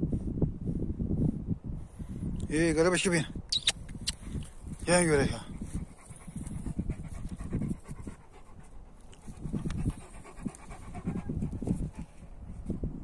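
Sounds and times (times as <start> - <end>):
dog panting: 5.0 - 12.8.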